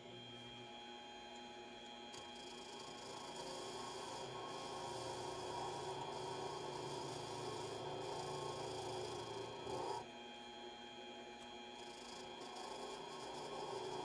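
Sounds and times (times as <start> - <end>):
lathe motor hum: 0.0 - 14.0
cutting tool scraping: 2.2 - 10.0, 11.8 - 14.0.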